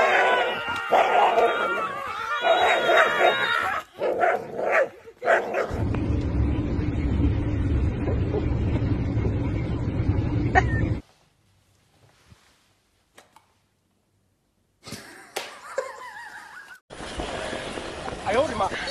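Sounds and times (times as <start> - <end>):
dog barking and yipping: 0.0 - 5.8
car cabin road noise: 5.7 - 11.0.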